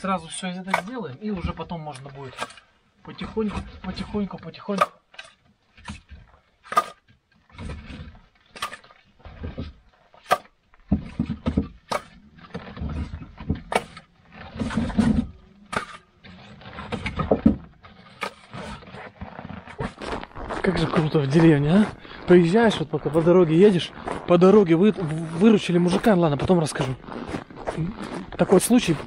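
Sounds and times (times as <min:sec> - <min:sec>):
footsteps crunching in snow: 0:18.5 - 0:29.0.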